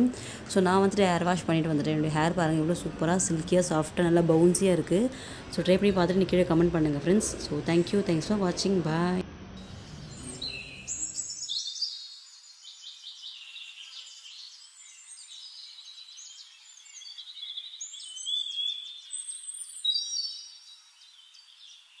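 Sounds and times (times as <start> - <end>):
small birds chirping: 9.6 - 22.0.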